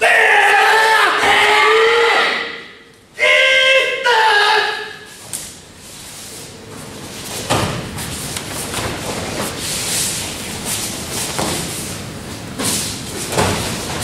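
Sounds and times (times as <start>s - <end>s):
group shout: 0.0s - 5.1s.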